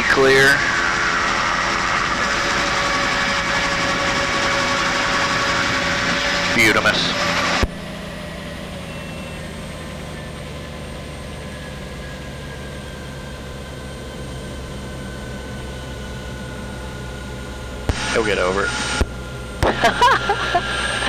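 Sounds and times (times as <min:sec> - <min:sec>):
helicopter engine and rotor running: 0:00.0 - 0:21.0
burst of noise: 0:17.9 - 0:21.0.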